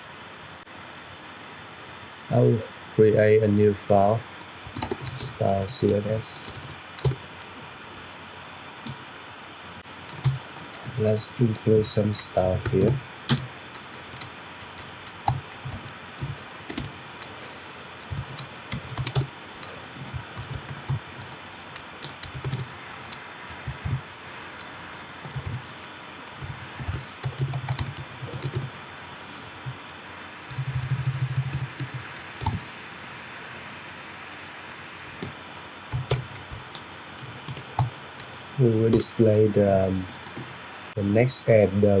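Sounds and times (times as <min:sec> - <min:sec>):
typing on computer keyboard: 0:04.7 - 0:07.5, 0:10.0 - 0:11.8, 0:12.4 - 0:17.4, 0:18.0 - 0:28.7, 0:30.4 - 0:32.6, 0:35.2 - 0:36.6, 0:37.2 - 0:37.9.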